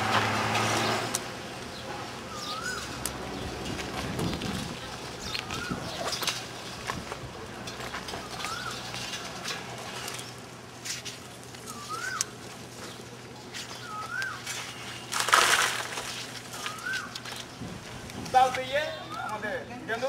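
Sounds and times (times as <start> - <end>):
rush of coal: 0.0 - 18.6
bird whistling: 2.3 - 2.9, 8.2 - 8.8, 11.7 - 12.3, 13.8 - 15.0, 16.6 - 17.2
coal lumps knocking and scraping: 14.5 - 18.7.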